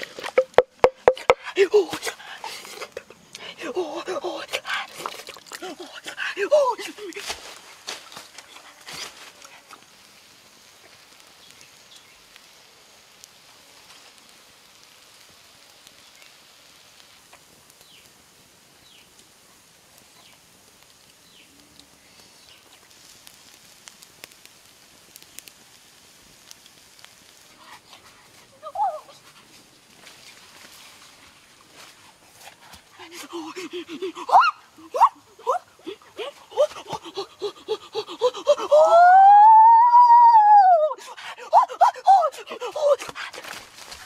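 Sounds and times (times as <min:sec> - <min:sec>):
small pops and ticks: 0:00.0 - 0:01.4, 0:07.1 - 0:27.6
wood fire crackling: 0:00.0 - 0:44.0.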